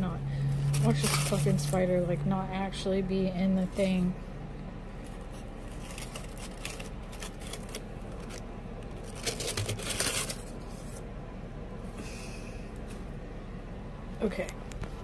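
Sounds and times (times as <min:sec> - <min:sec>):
paper packing rustling: 0:00.6 - 0:01.9, 0:05.0 - 0:11.0.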